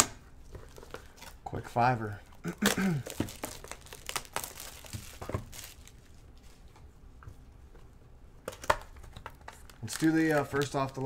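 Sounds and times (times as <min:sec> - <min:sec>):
packaging crinkling and tearing: 0:02.4 - 0:06.7, 0:08.5 - 0:11.0.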